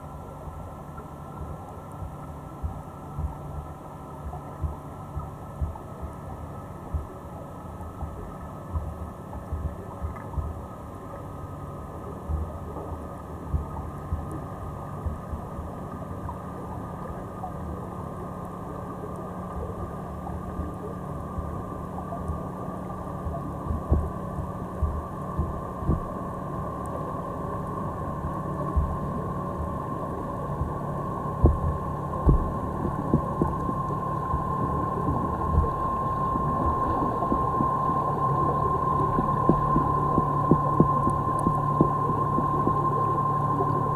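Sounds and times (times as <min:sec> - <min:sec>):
underwater rumble of moving water: 0:00.0 - 0:43.9
soft low thumps: 0:02.0 - 0:10.7, 0:12.2 - 0:15.8, 0:23.2 - 0:27.0, 0:28.0 - 0:43.9
dull thumps: 0:31.4 - 0:35.8.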